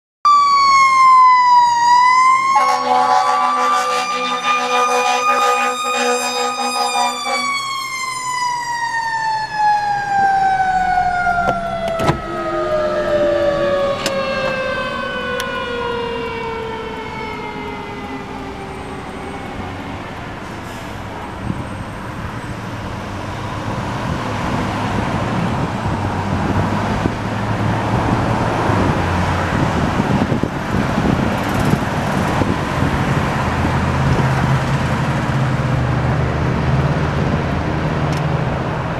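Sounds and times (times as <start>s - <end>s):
road traffic noise: 0.2s - 38.9s
mechanical siren winding down: 0.3s - 21.2s.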